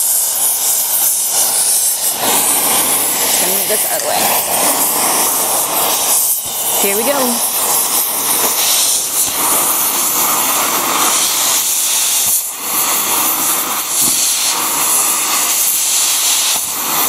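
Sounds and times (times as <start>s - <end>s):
cutting torch hissing: 0.0s - 17.0s.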